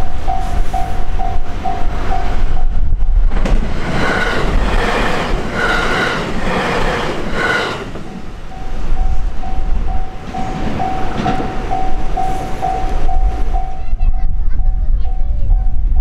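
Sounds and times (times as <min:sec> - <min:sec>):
electric train passing: 0:00.0 - 0:14.2
level crossing bell dinging: 0:08.1 - 0:13.9.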